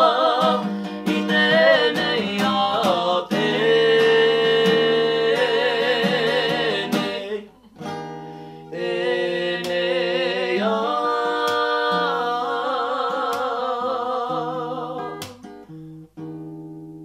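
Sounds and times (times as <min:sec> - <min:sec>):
two voices singing: 0:00.0 - 0:07.7, 0:08.7 - 0:15.4
strummed acoustic guitar: 0:00.0 - 0:17.0.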